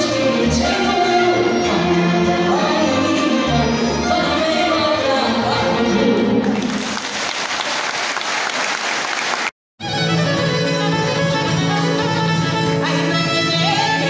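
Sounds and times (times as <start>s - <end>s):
audience applauding: 6.4s - 9.5s
folk band with fiddles: 9.8s - 14.0s.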